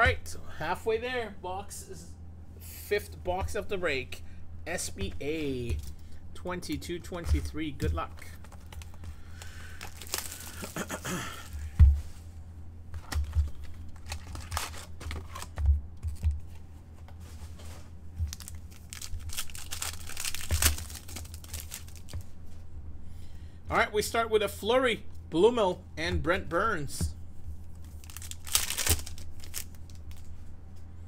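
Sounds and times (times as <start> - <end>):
wrappers tearing and crinkling: 8.6 - 11.6, 13.5 - 15.6, 18.3 - 22.2, 27.7 - 30.3.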